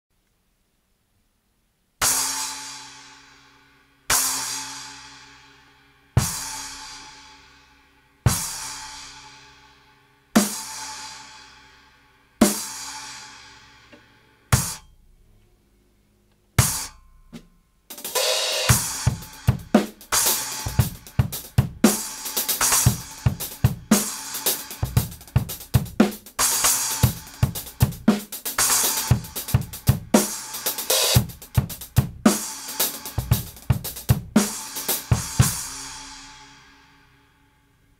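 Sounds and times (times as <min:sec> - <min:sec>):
drum kit groove: 0:02.0 - 0:03.1, 0:04.1 - 0:05.4, 0:06.2 - 0:07.5, 0:08.3 - 0:09.3, 0:10.4 - 0:11.6, 0:12.4 - 0:15.2, 0:16.6 - 0:36.7.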